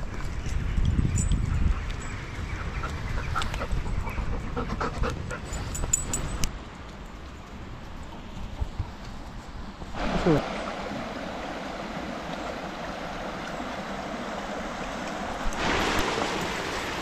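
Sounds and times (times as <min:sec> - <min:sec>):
dog panting: 0:02.7 - 0:06.2.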